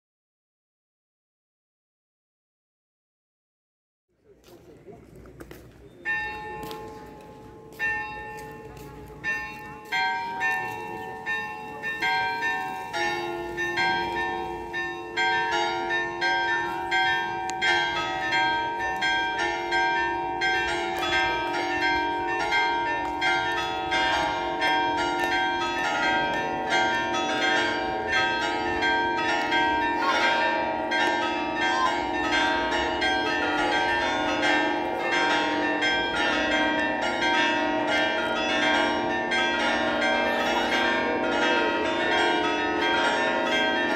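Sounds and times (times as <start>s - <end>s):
church bells ringing: 5.8s - 43.9s.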